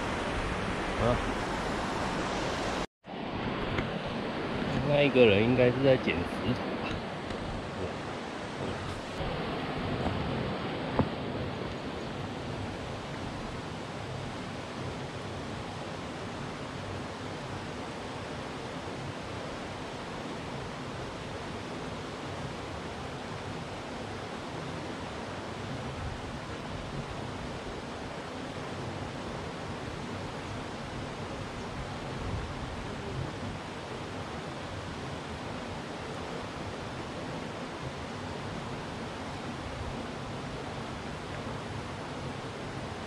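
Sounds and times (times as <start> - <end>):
stream water flowing: 0.0 - 43.0.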